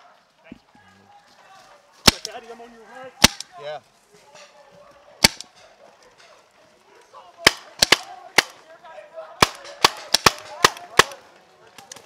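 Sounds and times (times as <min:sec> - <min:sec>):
paintball marker shots: 0:02.0 - 0:02.3, 0:03.2 - 0:03.5, 0:05.2 - 0:05.5, 0:07.4 - 0:08.6, 0:09.4 - 0:11.2.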